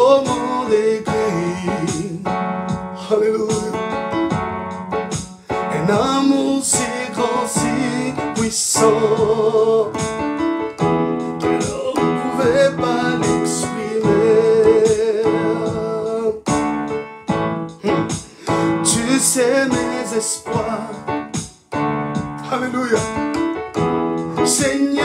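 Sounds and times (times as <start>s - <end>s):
man singing: 0.0s - 4.2s, 5.5s - 10.4s, 11.2s - 16.9s, 17.8s - 21.4s, 22.4s - 23.6s, 24.3s - 25.0s
keyboard piano chords: 0.0s - 25.0s.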